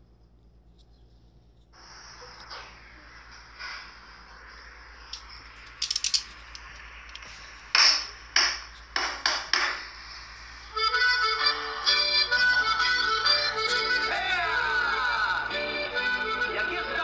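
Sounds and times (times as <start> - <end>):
sharp knocks: 7.8 - 9.9
accordion music: 10.6 - 17.0.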